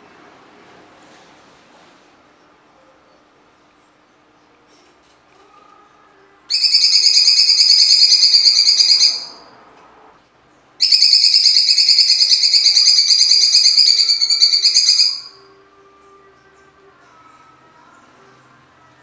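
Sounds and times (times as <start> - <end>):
bird singing harsh trills: 6.5 - 9.4, 10.8 - 15.4.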